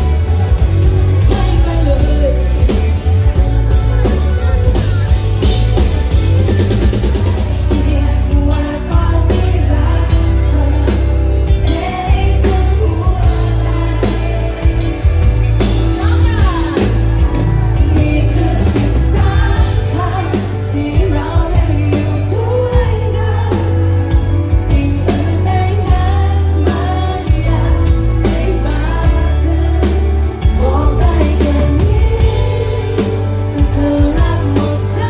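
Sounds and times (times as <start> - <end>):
band playing: 0.0 - 35.0
woman singing into microphone: 1.2 - 2.8, 7.5 - 14.8, 17.8 - 35.0.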